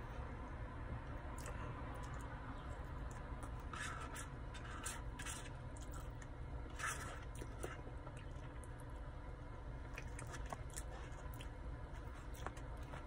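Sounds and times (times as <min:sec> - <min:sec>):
low steady hum: 0:00.0 - 0:13.0
scratchy chewing noises: 0:01.0 - 0:09.1, 0:09.8 - 0:13.0.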